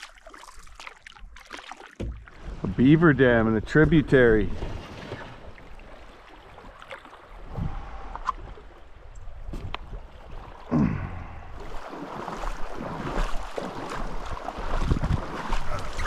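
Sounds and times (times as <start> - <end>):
water rippling around canoe hull: 0.0 - 16.0
wind rumble on microphone: 7.4 - 10.4, 14.7 - 16.0.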